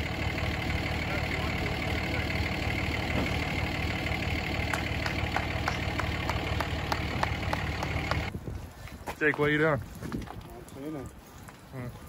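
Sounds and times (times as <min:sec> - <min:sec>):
vehicle engine idling: 0:00.0 - 0:08.3.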